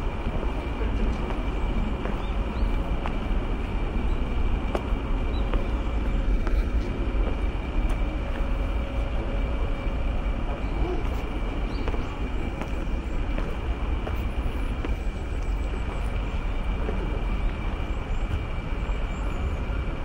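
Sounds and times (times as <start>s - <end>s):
footsteps on sand: 0.0s - 8.7s, 10.5s - 16.4s
low city rumble: 0.0s - 20.0s.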